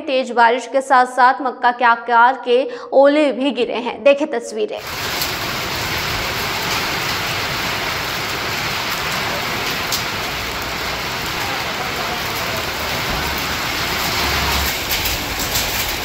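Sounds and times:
heavy rain on road: 4.8s - 16.0s.

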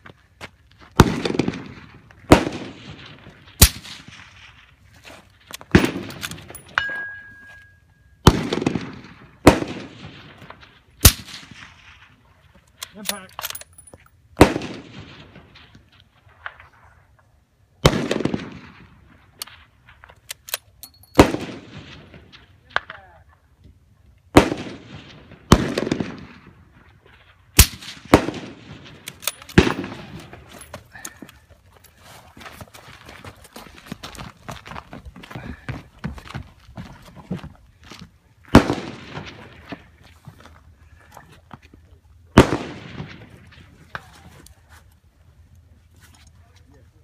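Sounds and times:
suppressed rifle shots echoing: 8.2s - 12.1s, 27.6s - 30.4s.

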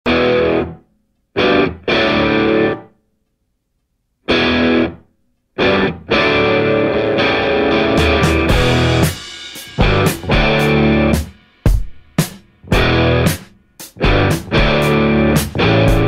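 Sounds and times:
distorted electric guitar chords: 0.1s - 2.9s, 4.3s - 5.0s, 5.6s - 11.4s, 12.6s - 16.0s.

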